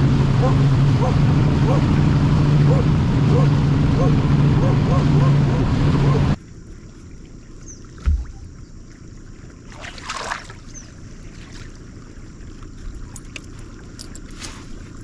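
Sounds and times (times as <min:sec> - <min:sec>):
wind and water hiss: 0:06.4 - 0:15.0
low thump: 0:08.0 - 0:08.6.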